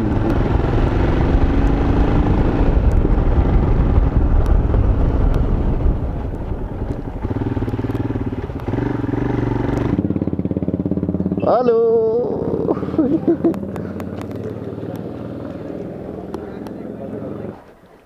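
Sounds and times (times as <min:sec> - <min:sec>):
wind rushing over microphone: 0:00.0 - 0:10.0
motorcycle engine running: 0:00.0 - 0:17.6.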